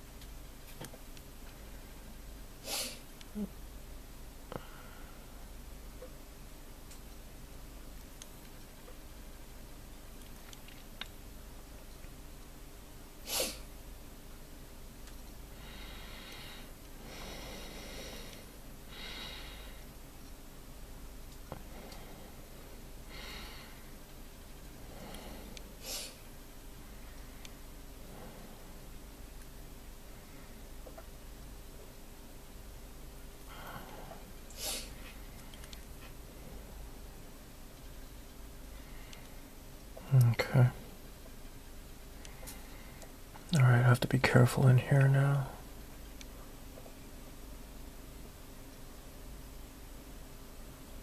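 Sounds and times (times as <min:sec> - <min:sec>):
low steady hum: 0:00.0 - 0:51.0
person sniffing: 0:02.6 - 0:03.5, 0:13.2 - 0:13.7, 0:25.0 - 0:26.2, 0:33.6 - 0:35.2
person breathing through nose: 0:15.5 - 0:19.9, 0:21.6 - 0:24.0.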